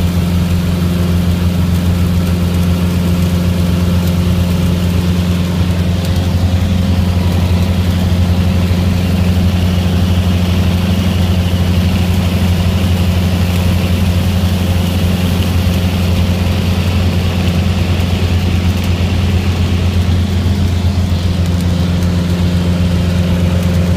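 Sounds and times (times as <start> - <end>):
airplane engine and propeller droning: 0.0 - 23.9.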